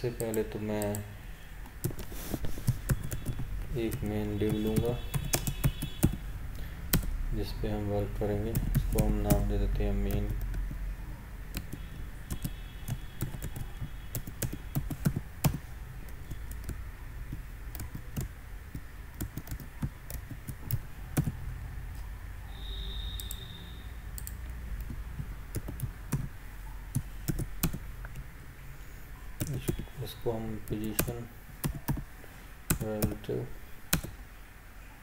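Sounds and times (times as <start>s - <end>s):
keyboard typing: 0.0s - 6.3s, 6.9s - 7.2s, 8.3s - 10.9s, 11.5s - 22.1s, 23.1s - 23.4s, 24.1s - 28.3s, 29.4s - 32.1s, 32.7s - 33.3s, 33.9s - 34.2s.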